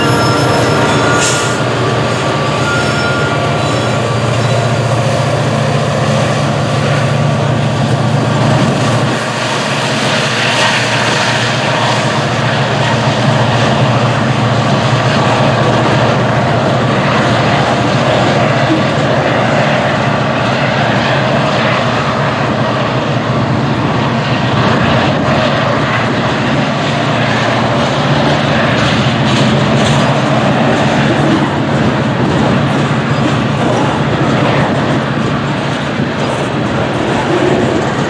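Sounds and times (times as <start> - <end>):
diesel locomotives rumbling: 0.0 - 38.0
freight cars wheel-on-rail noise: 0.0 - 38.0.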